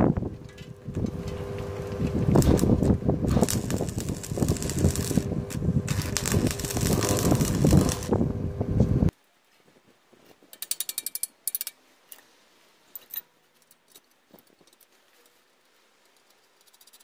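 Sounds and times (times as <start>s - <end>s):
faint handling of motor: 0.3s - 9.0s
welding arc crackling: 0.8s - 9.1s
rapid ratchet-like clicks: 10.5s - 11.8s, 16.0s - 17.0s.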